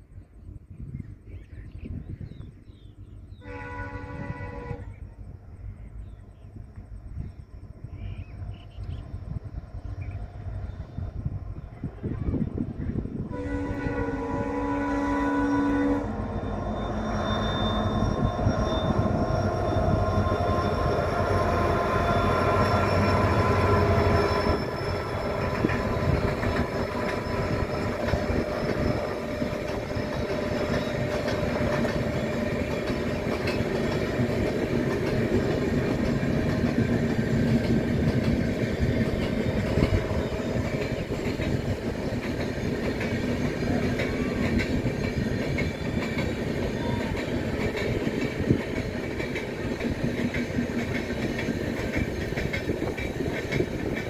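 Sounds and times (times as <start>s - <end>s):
train coaches rolling past: 0.0s - 54.0s
locomotive engine passing: 2.9s - 54.0s
wheels clicking over rail joints: 25.1s - 54.0s.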